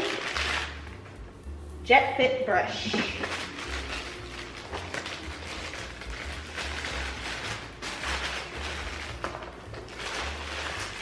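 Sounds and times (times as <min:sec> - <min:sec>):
plastic bag crinkling: 0:00.0 - 0:01.1, 0:02.8 - 0:11.0.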